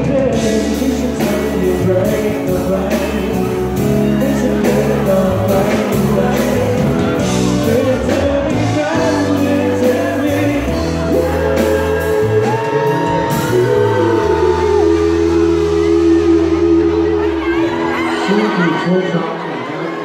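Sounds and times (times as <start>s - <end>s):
live pop band and singer: 0.0s - 20.0s
audience shouting: 5.2s - 20.0s.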